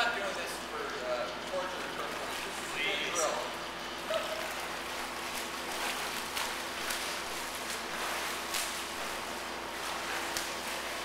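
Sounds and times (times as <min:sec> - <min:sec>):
swimmers splashing strokes: 0:03.5 - 0:11.0.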